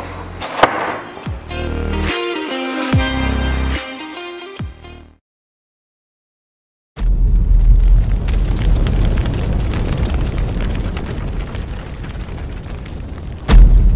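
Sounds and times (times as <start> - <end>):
crackling: 7.0 - 13.9
explosion blast: 7.0 - 13.9.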